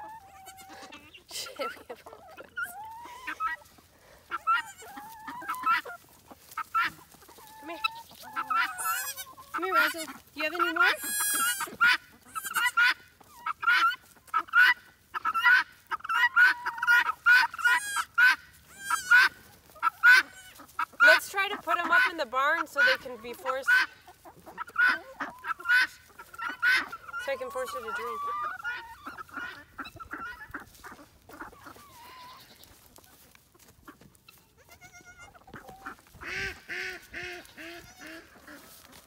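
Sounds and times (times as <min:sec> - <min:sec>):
farm animals calling: 0:00.0 - 0:39.0.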